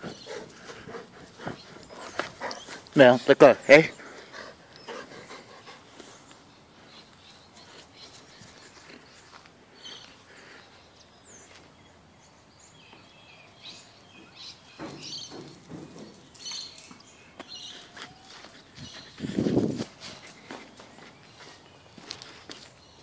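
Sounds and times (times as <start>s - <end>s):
rustling footsteps: 0.0s - 3.2s, 3.9s - 10.4s, 14.6s - 23.0s
small birds chirping: 0.0s - 23.0s.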